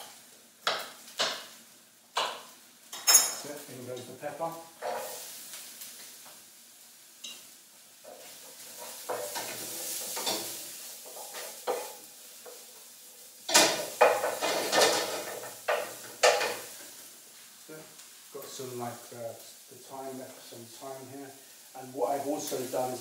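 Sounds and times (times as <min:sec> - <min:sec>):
vegetables sizzling in a frying pan: 0:00.0 - 0:23.0
utensil scraping a pan: 0:04.8 - 0:05.4, 0:08.0 - 0:12.8, 0:13.5 - 0:17.0.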